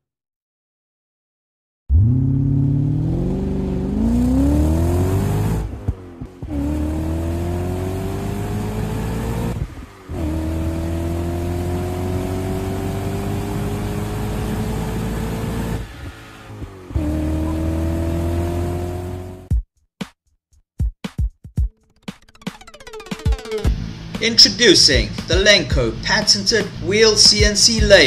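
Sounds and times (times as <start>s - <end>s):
car engine accelerating: 1.9s - 19.5s.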